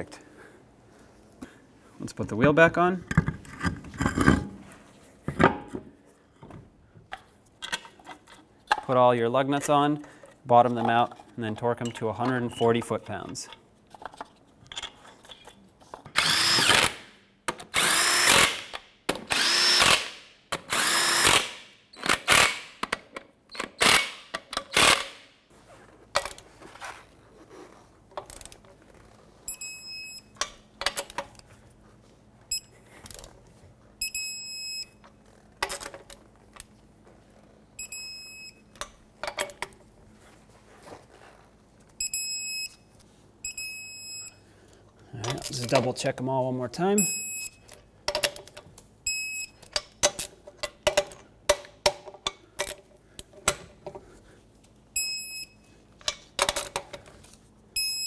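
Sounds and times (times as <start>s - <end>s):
power tool spinning lug nuts: 16.1s - 17.1s, 17.7s - 18.6s, 19.2s - 22.7s.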